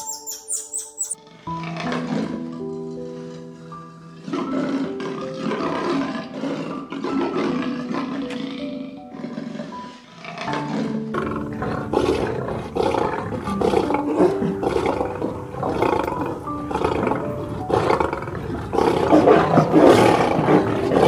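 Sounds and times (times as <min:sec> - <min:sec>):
soft piano music: 0:00.0 - 0:21.0
big cat roaring: 0:01.5 - 0:02.5, 0:04.0 - 0:21.0.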